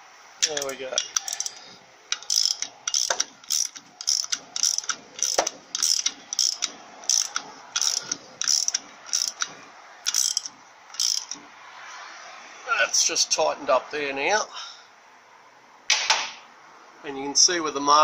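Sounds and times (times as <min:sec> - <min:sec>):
ratchet wrench clicking: 0:00.4 - 0:11.5.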